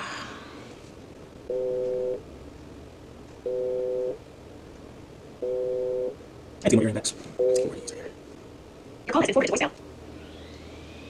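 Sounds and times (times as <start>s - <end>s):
two-tone phone ringing beeps: 3.5s - 4.2s, 5.4s - 6.1s.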